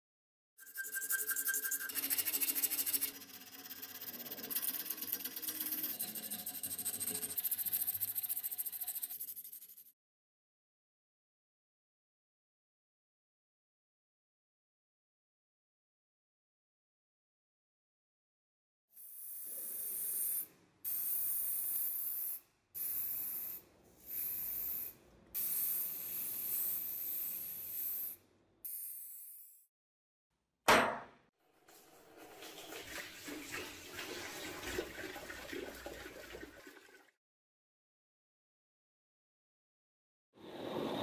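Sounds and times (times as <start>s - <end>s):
aerosol spray paint hissing: 19.0s - 29.6s
sharp knock: 30.7s - 31.2s
liquid cleaner fizzing and bubbling: 31.8s - 37.2s.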